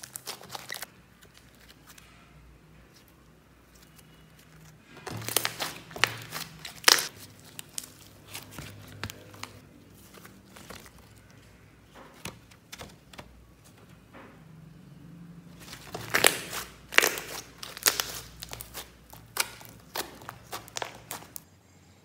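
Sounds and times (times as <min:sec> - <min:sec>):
slime crackling and popping: 0:00.0 - 0:01.4, 0:05.0 - 0:09.6, 0:15.6 - 0:21.4.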